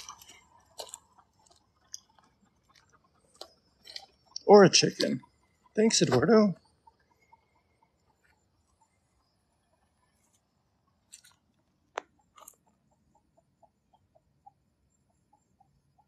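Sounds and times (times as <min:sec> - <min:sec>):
faint clicks and crunches: 0:00.0 - 0:05.3, 0:10.1 - 0:12.8
light irregular ticking: 0:00.0 - 0:16.0.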